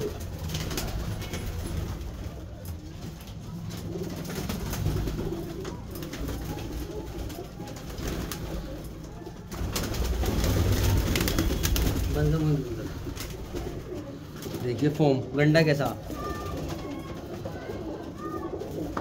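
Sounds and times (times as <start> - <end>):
pigeons cooing: 0.0 - 19.0
wings flapping: 0.0 - 19.0.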